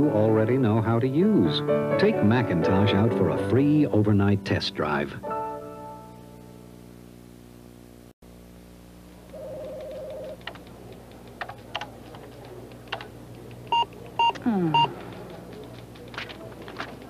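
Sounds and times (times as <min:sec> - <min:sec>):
keyboard keystrokes clacking: 0:09.6 - 0:17.0
short computer beeps: 0:13.7 - 0:14.9.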